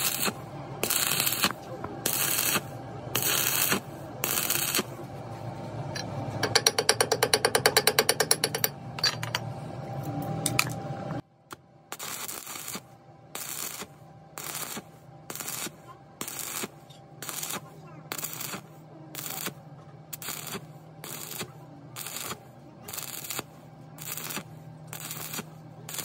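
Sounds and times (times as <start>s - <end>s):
rapid welding pulses: 0.0s - 4.9s, 11.9s - 26.0s
welding arc crackling: 0.0s - 5.0s, 11.9s - 26.0s.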